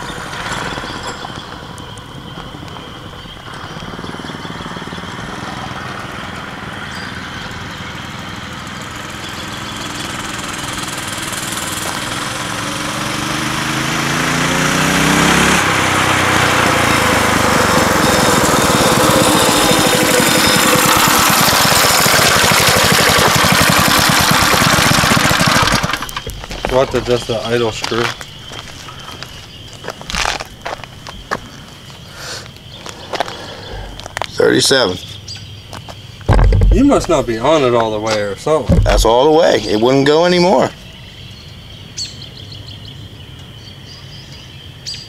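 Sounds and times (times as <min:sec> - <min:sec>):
small engine passing by: 0:00.0 - 0:30.4.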